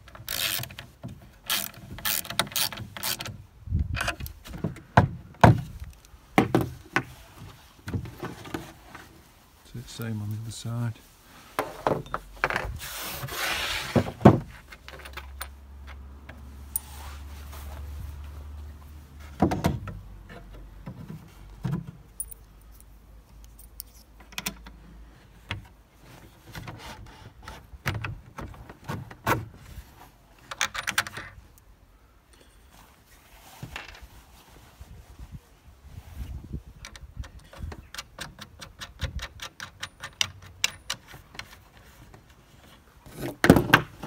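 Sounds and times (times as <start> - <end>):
metal hardware clinking: 22.2 - 24.6.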